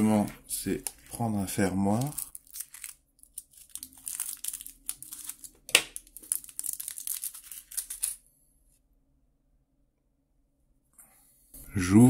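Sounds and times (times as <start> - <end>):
plastic bag crinkling: 0.6 - 8.2
scissors cutting plastic: 0.7 - 1.2, 1.9 - 8.2.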